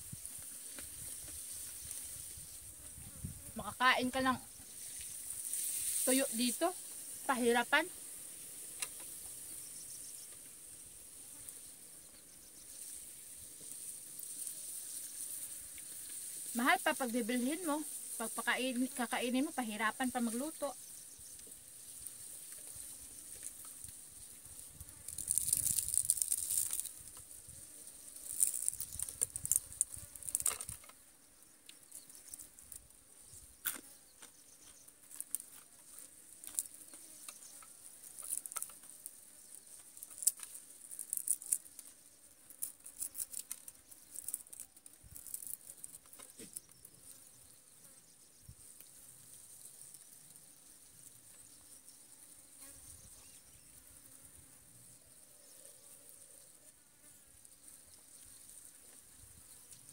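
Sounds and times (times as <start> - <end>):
high-pitched insect buzz: 0.0 - 59.9
crunching of fried fish: 24.9 - 27.3, 28.2 - 30.9, 38.1 - 39.0, 39.8 - 41.8, 42.5 - 46.8.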